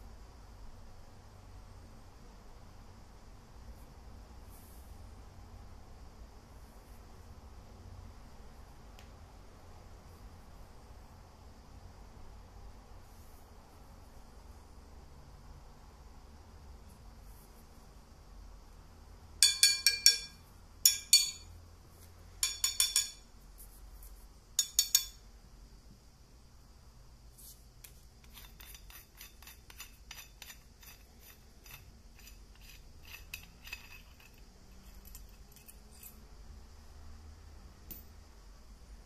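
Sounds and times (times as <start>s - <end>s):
steel parts clinking: 19.4s - 21.5s, 22.4s - 23.2s, 28.3s - 36.2s.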